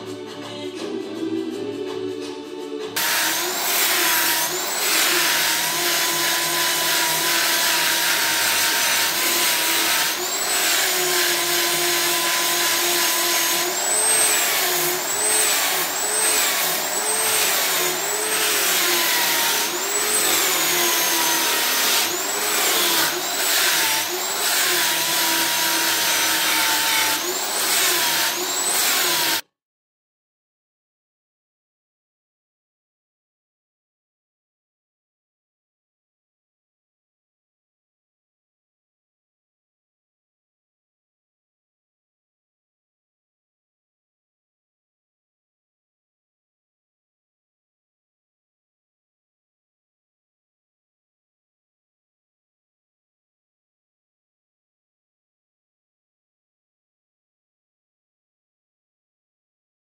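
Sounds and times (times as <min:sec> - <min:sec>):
electric sander sanding wood: 0:03.0 - 0:29.4.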